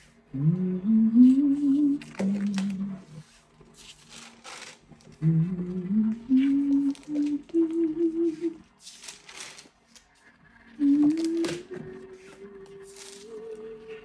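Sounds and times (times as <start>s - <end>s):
person humming: 0.3s - 3.4s, 5.1s - 8.7s, 10.7s - 14.0s.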